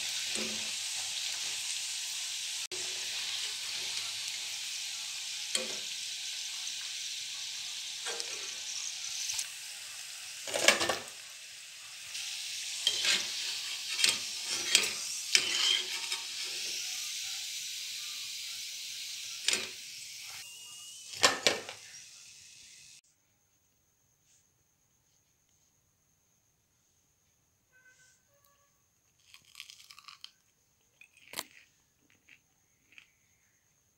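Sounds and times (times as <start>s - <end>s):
food deep-frying in oil: 0.0s - 23.0s, 29.2s - 30.3s
metal spatula scraping pan: 12.7s - 16.8s.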